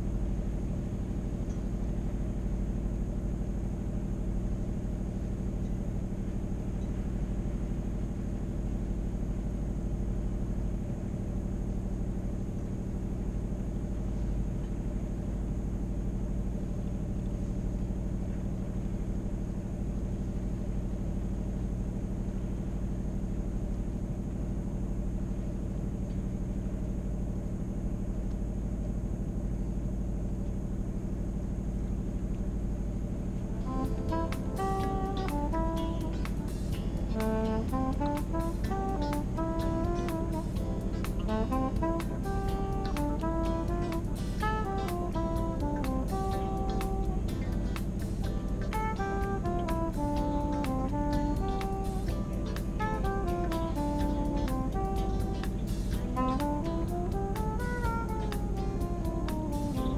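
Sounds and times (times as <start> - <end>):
boat engine running: 32.6 - 59.9.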